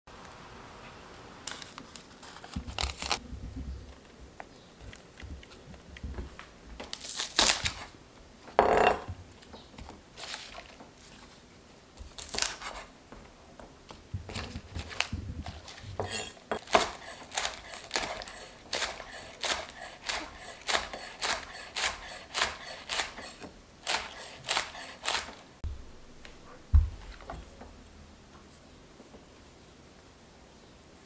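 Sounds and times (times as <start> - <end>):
knife cutting green onions: 14.8 - 25.4.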